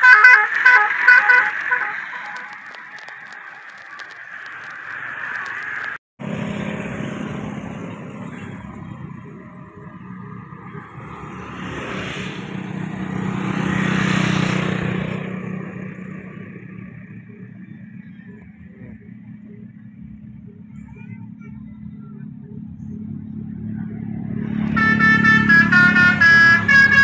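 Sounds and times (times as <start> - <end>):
motorcycles passing by: 5.1 - 27.0.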